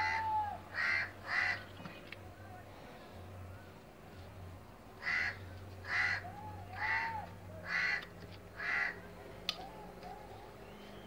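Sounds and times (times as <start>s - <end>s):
crow cawing: 0.0s - 1.7s, 5.0s - 9.1s.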